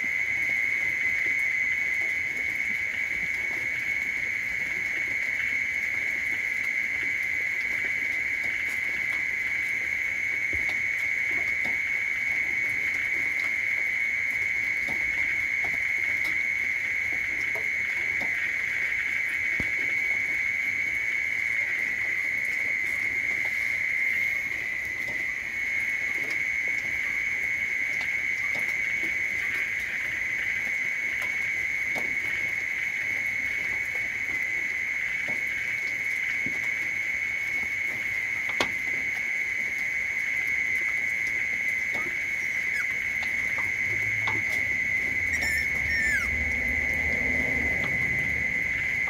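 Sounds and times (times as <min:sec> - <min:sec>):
high-pitched insect chorus: 0:00.0 - 0:49.0
short squeaks: 0:42.0 - 0:43.0, 0:45.3 - 0:46.3.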